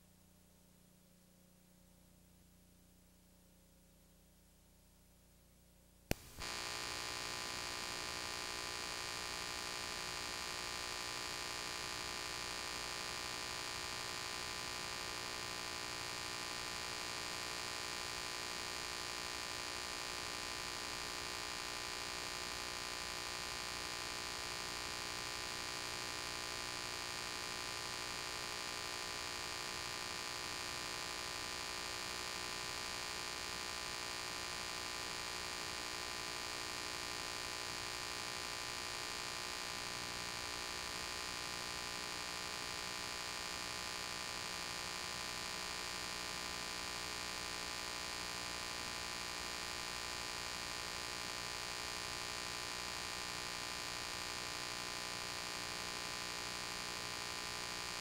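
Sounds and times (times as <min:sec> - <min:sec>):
sharp click: 0:06.1 - 0:06.5.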